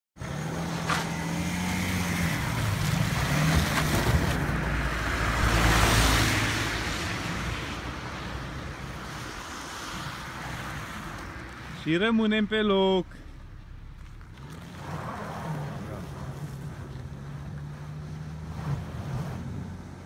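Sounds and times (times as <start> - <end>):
tyres on snow: 0.2 - 20.0
car engine running: 10.2 - 18.7.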